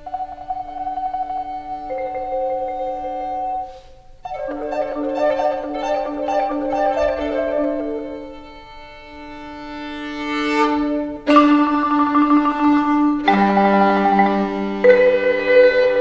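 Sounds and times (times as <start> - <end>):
marimba: 0.0 - 8.8, 10.2 - 16.0
clarinet: 0.0 - 16.0
violin: 4.3 - 16.0.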